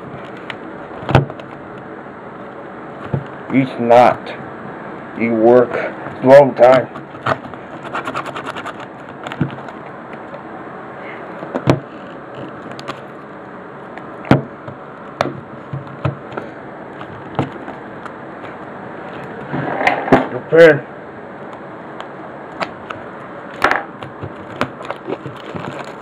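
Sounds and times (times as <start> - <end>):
plastic packaging clicks and knocks: 17.0 - 17.8, 23.6 - 26.0.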